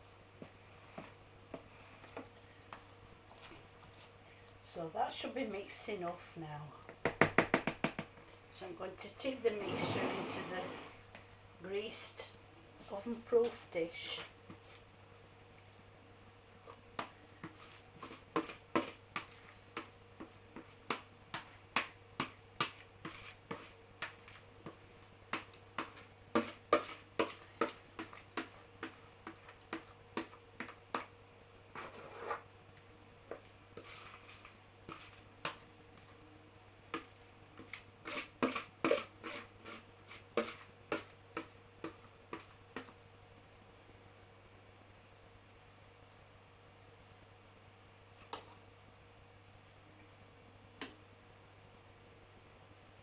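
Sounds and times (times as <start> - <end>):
metal spoon scraping plastic bowl: 31.8 - 32.4, 37.6 - 41.1.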